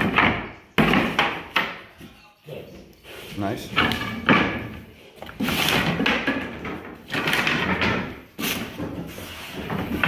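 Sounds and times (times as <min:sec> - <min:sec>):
wooden planks scraping and clattering: 0:03.6 - 0:10.0.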